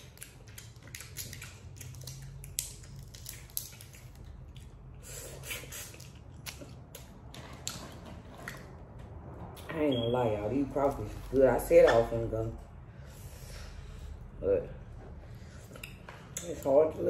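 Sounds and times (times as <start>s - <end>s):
crawfish shells cracking: 0.0s - 4.6s
wet squishing and eating: 0.0s - 9.7s.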